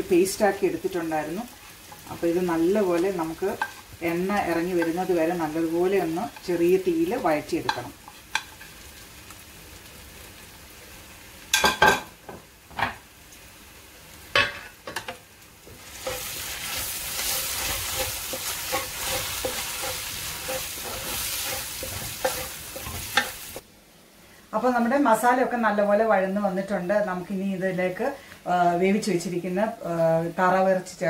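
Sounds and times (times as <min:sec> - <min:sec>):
paste sizzling in oil: 0:00.2 - 0:11.6, 0:13.4 - 0:23.6.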